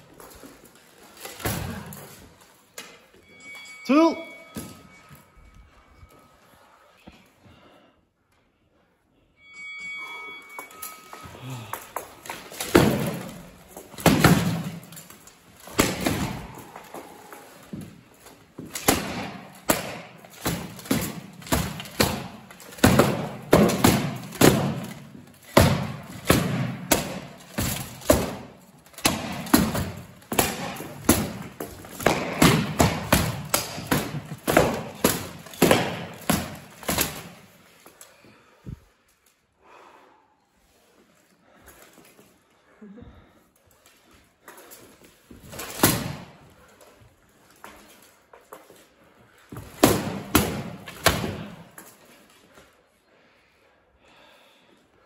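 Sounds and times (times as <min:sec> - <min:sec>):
practice swords striking armour: 0:01.2 - 0:02.2, 0:11.4 - 0:37.6, 0:45.4 - 0:46.5, 0:49.5 - 0:52.0.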